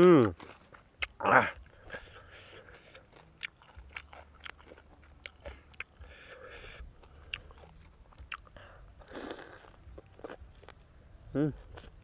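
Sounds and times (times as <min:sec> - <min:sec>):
person chewing: 0:00.0 - 0:10.8, 0:11.6 - 0:12.0.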